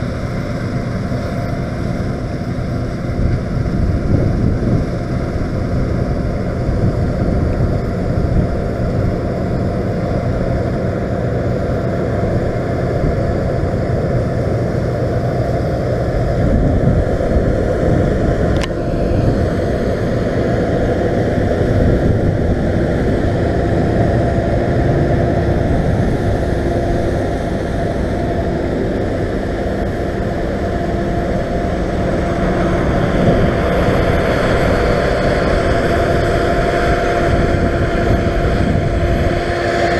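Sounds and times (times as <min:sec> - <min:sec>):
combine harvester working: 0:00.0 - 0:39.9
tractor engine running: 0:00.0 - 0:39.9.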